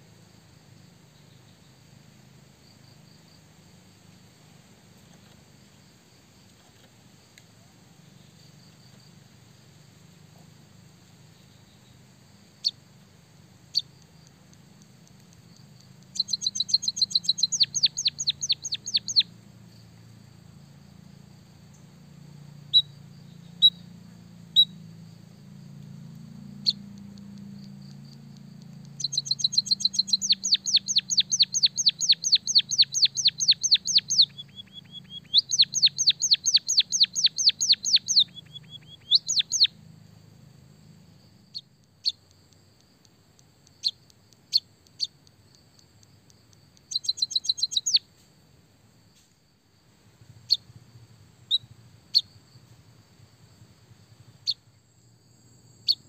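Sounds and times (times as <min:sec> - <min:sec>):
single bird chirps: 0:15.1 - 0:19.3, 0:22.7 - 0:23.9, 0:24.5 - 0:24.8, 0:26.6 - 0:27.8, 0:28.6 - 0:39.8, 0:41.5 - 0:42.4, 0:43.6 - 0:45.9, 0:46.8 - 0:48.1, 0:50.4 - 0:50.7, 0:51.5 - 0:52.4, 0:54.4 - 0:54.6.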